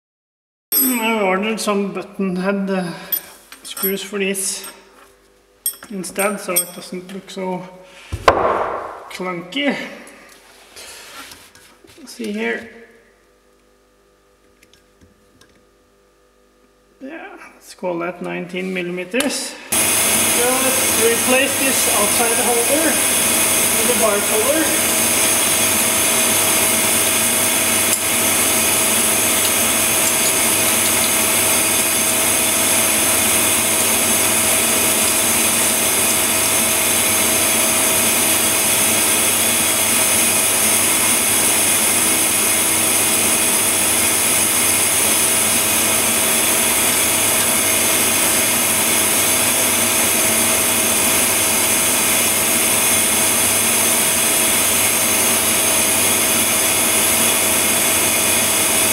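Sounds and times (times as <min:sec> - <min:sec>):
lathe humming at idle: 0:19.6 - 0:58.9.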